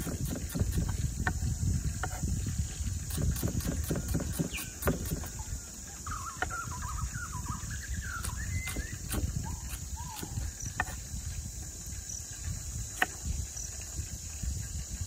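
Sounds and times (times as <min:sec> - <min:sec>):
knife chopping on wooden board: 0:00.0 - 0:01.4, 0:03.1 - 0:05.3, 0:08.2 - 0:11.0
bird warbling: 0:04.4 - 0:10.4.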